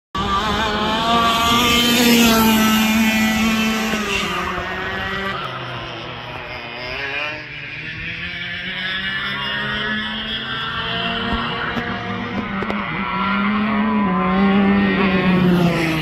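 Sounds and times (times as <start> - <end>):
go-kart engines whining: 0.2 - 16.0.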